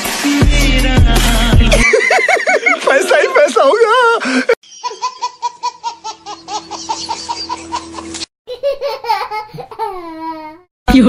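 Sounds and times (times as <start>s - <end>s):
comic high-pitched laughter effect: 4.8s - 10.2s.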